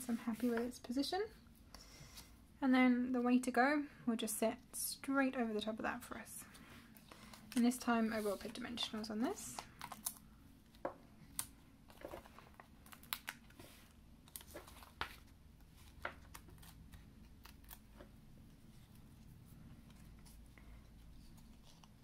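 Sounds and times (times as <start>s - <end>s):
small clicks and paper rustles: 6.4s - 22.0s.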